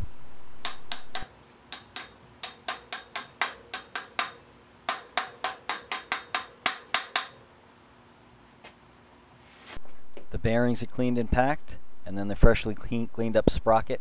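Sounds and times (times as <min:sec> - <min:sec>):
hammer tapping on metal: 0:00.6 - 0:07.4.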